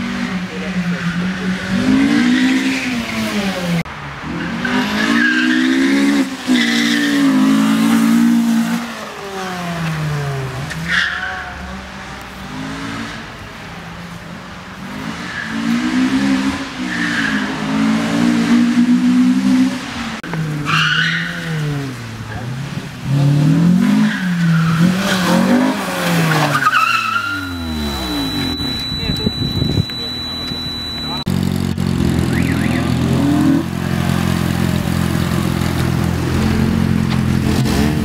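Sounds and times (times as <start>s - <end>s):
car engine at full throttle: 0.0s - 38.0s
tyres squealing: 23.9s - 31.3s.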